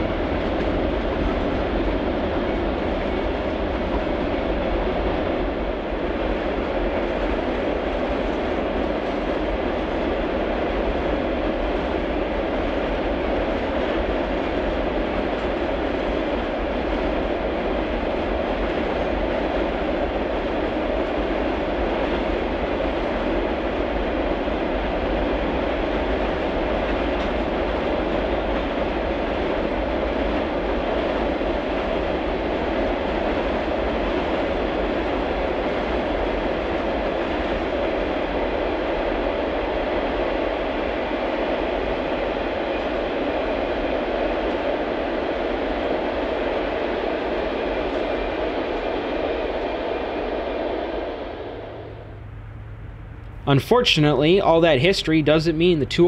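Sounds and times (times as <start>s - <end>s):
freight cars rumbling on rails: 51.0s - 56.0s.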